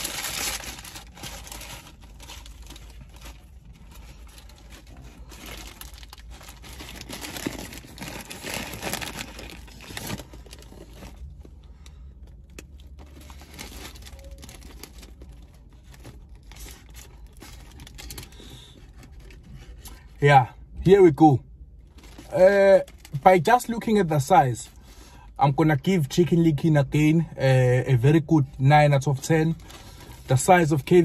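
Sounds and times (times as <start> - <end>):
paper wrapper rustling and crinkling: 0.0 - 20.2, 21.9 - 24.3, 28.9 - 31.0.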